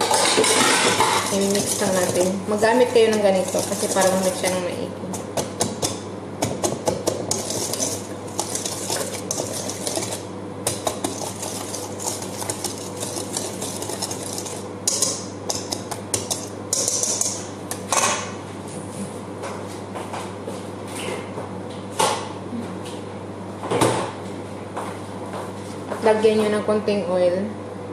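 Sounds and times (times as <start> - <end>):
whisk clinking in metal bowl: 0.0 - 4.7, 6.8 - 17.5.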